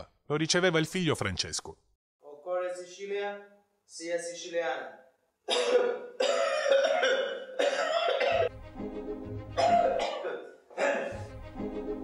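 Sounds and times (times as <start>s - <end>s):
man coughing hard: 5.4s - 8.5s, 9.6s - 11.3s
background music: 7.6s - 12.0s.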